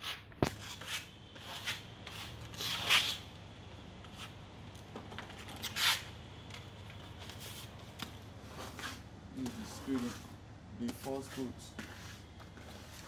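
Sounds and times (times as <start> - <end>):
trowel scraping wet plaster: 0.0 - 3.2.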